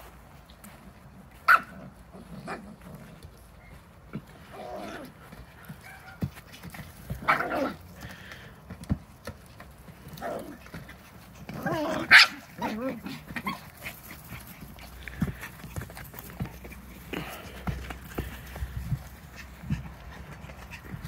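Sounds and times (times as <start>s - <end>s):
small dogs barking and yipping: 1.4s - 2.5s, 5.8s - 6.3s, 7.1s - 7.8s, 10.2s - 16.9s.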